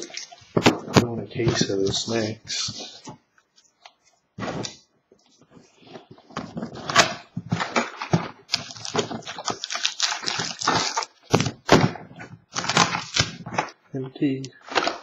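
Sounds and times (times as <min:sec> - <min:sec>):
cardboard box and cards rustling: 0:05.4 - 0:13.8, 0:14.6 - 0:15.0.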